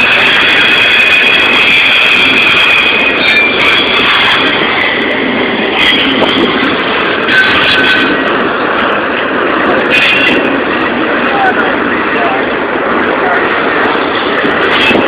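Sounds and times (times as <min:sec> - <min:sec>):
high wheel squeals: 0:00.0 - 0:08.3
freight train rumble and rattle: 0:00.0 - 0:15.0.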